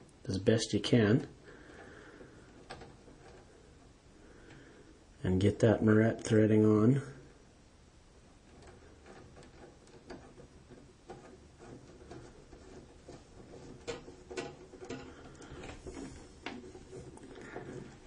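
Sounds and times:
wire connector clicking and scraping: 0:02.4 - 0:03.9, 0:08.4 - 0:18.0.

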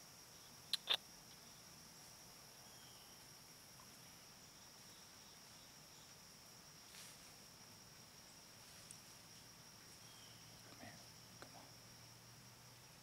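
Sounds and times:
insect drone: 0:00.0 - 0:13.0
soft rustle: 0:03.0 - 0:11.1.

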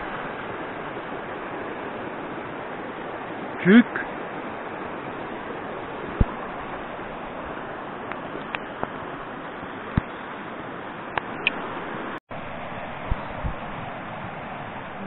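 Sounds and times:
river rushing: 0:00.0 - 0:15.0.

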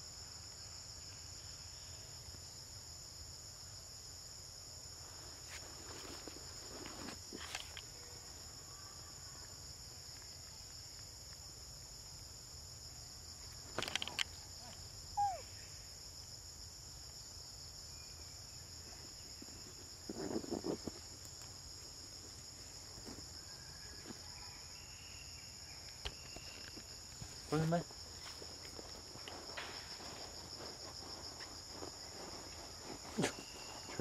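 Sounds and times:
insects droning: 0:00.0 - 0:34.0
rustling or clicking: 0:13.7 - 0:14.4.

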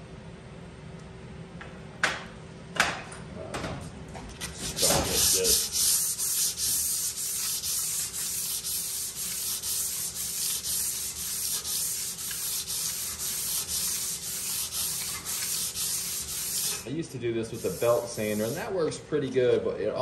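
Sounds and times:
sandpaper scraping metal: 0:04.5 - 0:16.9, 0:17.5 - 0:18.7.

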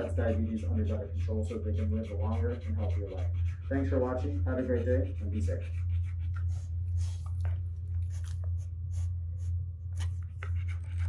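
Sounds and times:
dog panting: 0:00.0 - 0:11.0
low hum: 0:00.0 - 0:11.0.

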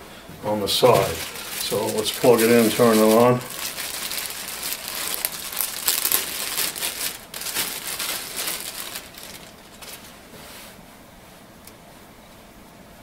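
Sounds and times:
plastic bag crinkling: 0:00.5 - 0:10.2.

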